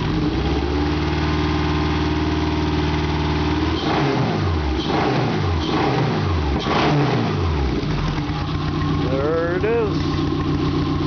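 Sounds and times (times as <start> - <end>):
engine idling: 0.0 - 3.8, 7.3 - 11.0
engine revving: 0.0 - 11.0.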